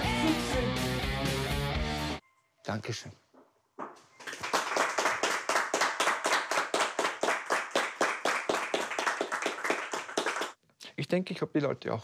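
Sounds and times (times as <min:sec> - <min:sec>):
audience clapping: 0:04.2 - 0:10.6.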